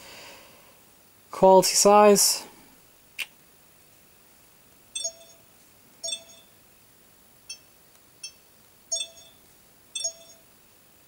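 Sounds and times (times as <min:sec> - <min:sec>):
short electronic beeps: 0:05.0 - 0:05.4, 0:06.0 - 0:06.5, 0:07.5 - 0:09.4, 0:10.0 - 0:10.5.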